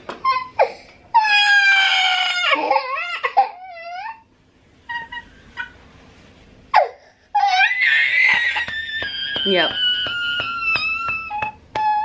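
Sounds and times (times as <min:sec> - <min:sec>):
toddler crying: 0:00.2 - 0:04.3, 0:06.8 - 0:12.0.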